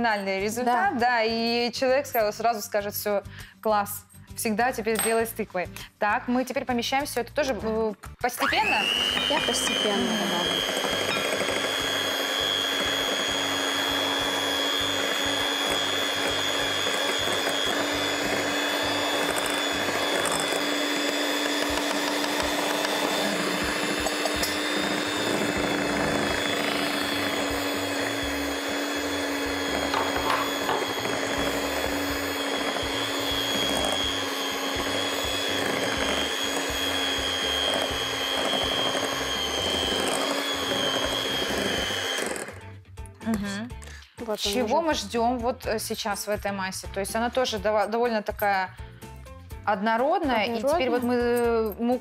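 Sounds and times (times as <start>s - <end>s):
beaters mixing cake batter: 6.9s - 42.7s, 49.7s - 52.0s
electric mixer motor whine: 8.4s - 42.7s.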